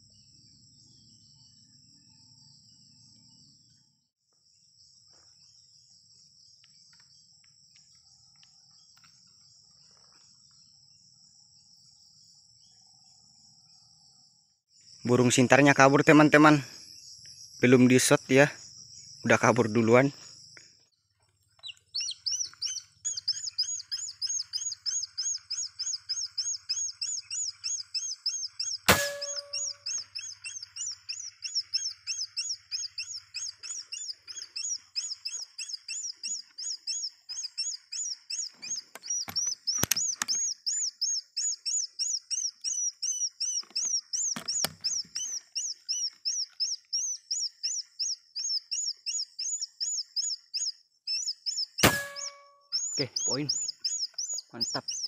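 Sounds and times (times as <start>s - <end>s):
electronic bird call chirps: 21.6s - 55.0s
sharp crack: 28.9s - 30.0s, 51.8s - 52.4s.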